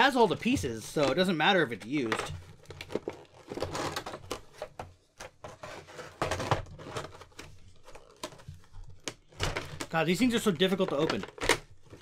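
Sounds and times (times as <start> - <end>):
stiff plastic tray clicking and crackling: 6.2 - 12.0.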